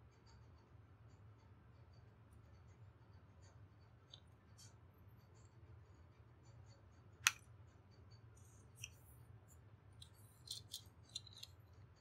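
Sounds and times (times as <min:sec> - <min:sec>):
faint low hum: 0:00.0 - 0:12.0
small clicks: 0:10.0 - 0:11.8.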